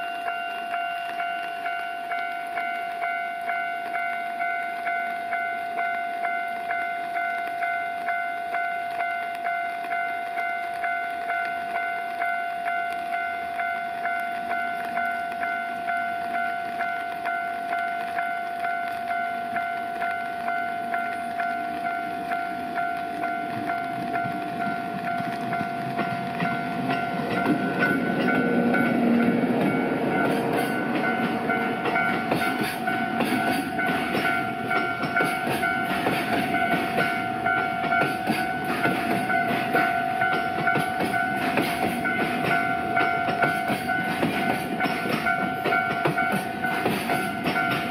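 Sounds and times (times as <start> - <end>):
freight train moving: 0.0 - 47.9
wagons clattering over rail joints: 17.9 - 47.9
steady high tone: 19.1 - 47.9.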